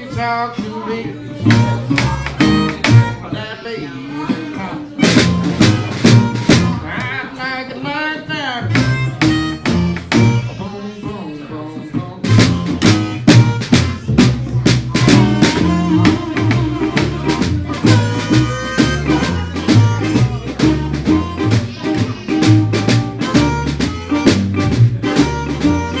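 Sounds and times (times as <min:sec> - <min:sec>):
upright double bass walking: 0:00.0 - 0:03.5, 0:04.3 - 0:07.3, 0:08.3 - 0:11.2, 0:11.8 - 0:26.0
acoustic guitar: 0:00.0 - 0:07.4, 0:08.2 - 0:26.0
drum struck with sticks: 0:05.0 - 0:07.0, 0:12.3 - 0:26.0.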